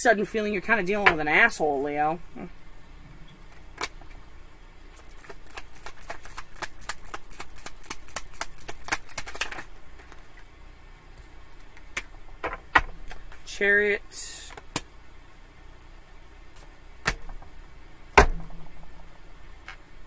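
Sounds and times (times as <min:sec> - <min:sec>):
cards being shuffled: 0:05.0 - 0:10.3.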